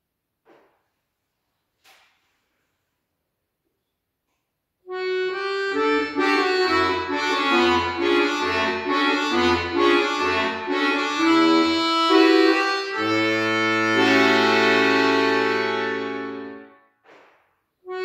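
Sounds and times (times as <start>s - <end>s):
accordion melody: 4.9s - 16.9s.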